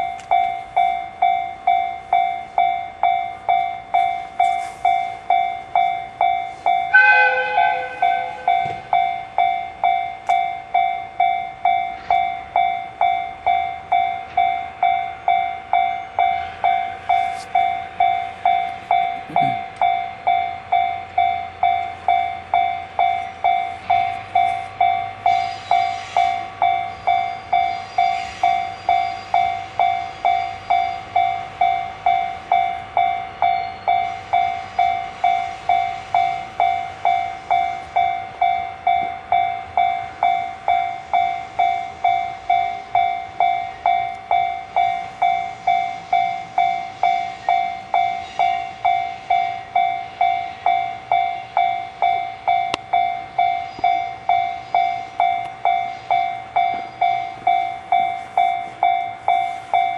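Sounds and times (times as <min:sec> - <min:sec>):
level crossing bell ringing: 0:00.0 - 0:59.9.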